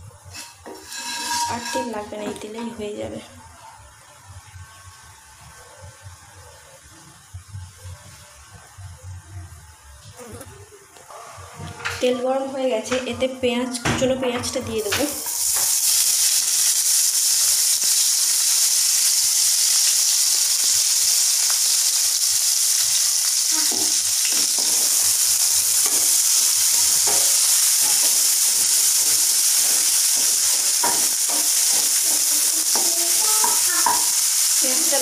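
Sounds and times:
onions sizzling in oil: 0.0s - 8.5s, 14.5s - 35.0s
wooden spatula scraping pan: 0.4s - 2.2s.

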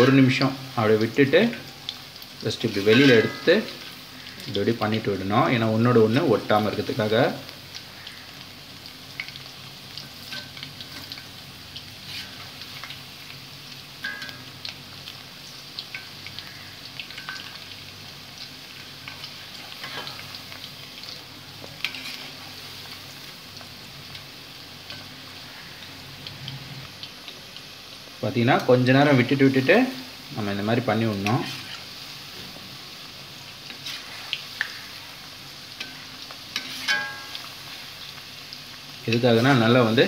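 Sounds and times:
food deep-frying in oil: 0.0s - 40.0s
metal spoon clinking and scraping: 2.8s - 3.8s, 35.8s - 37.4s.

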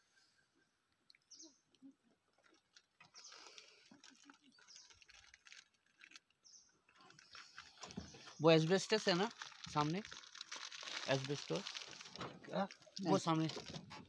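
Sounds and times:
faint bird chirps: 0.0s - 2.0s.

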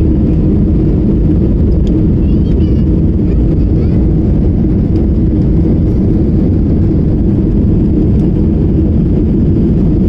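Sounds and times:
jet airliner cabin drone: 0.0s - 10.0s.

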